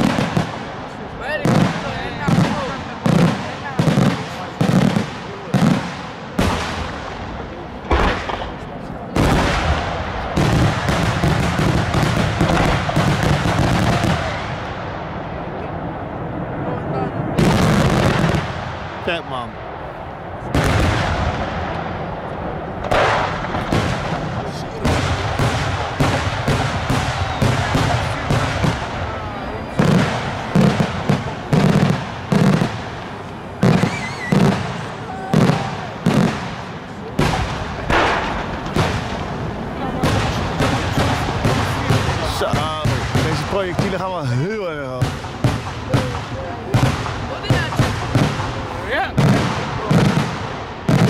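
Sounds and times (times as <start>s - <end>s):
fireworks booming: 0.0s - 51.0s
warbling firework whistle: 33.7s - 36.0s.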